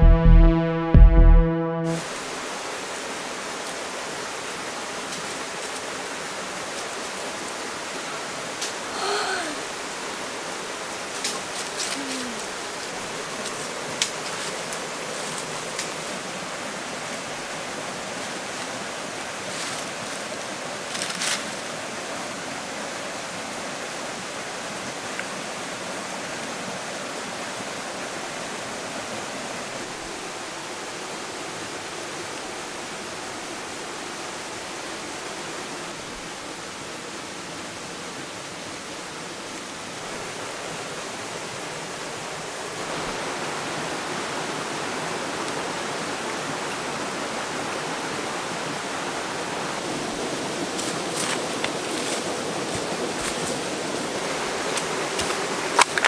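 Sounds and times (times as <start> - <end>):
short sharp sounds: 0.0 - 2.0
river water rushing: 1.9 - 56.0.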